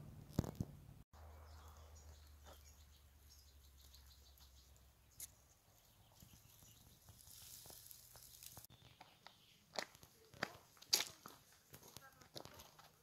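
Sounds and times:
woodland ambience: 1.2s - 13.0s
footsteps on leafy dirt trail: 6.2s - 13.0s.

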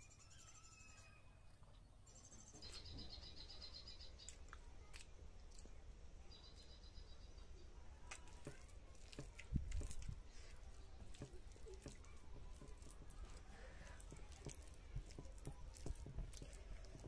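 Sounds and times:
bird chirping: 0.0s - 4.5s, 6.2s - 7.7s
fingers squishing rice: 2.6s - 17.0s
chewing clicks and smacks: 4.2s - 5.8s.

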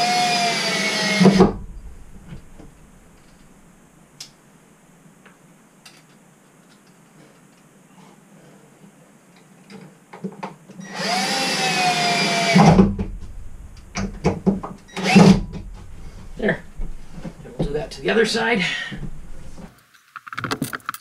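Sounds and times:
cordless drill motor whining: 0.0s - 1.4s, 10.8s - 12.8s, 14.9s - 15.4s
low thump: 1.3s - 3.7s, 12.6s - 18.1s, 18.9s - 19.7s.

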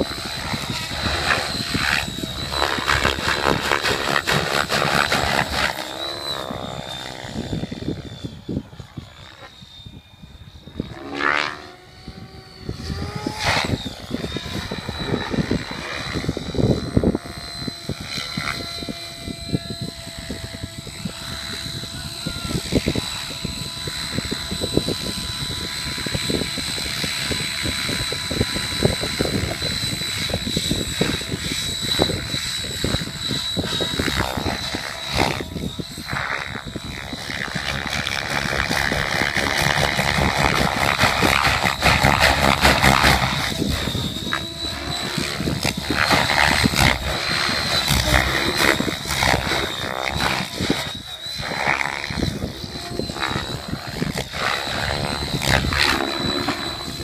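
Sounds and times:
helicopter rotor blades whooshing: 0.0s - 57.0s
high-pitched motor whine: 0.0s - 57.0s.

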